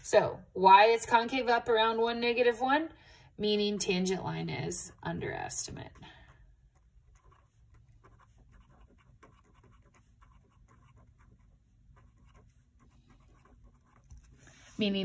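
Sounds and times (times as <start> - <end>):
felt-tip pen scratching on paper: 6.6 - 15.0.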